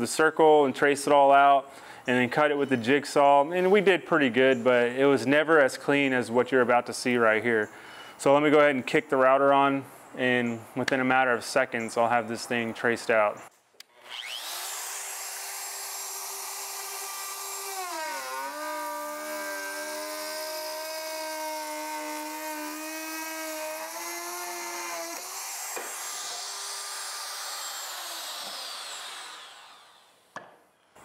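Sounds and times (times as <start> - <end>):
router whining cutting wood: 13.9 - 30.2.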